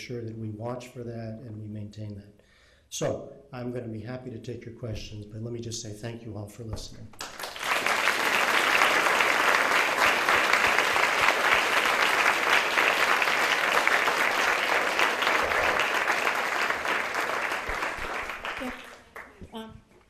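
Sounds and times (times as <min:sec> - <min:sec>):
crowd applauding: 0:07.2 - 0:19.5.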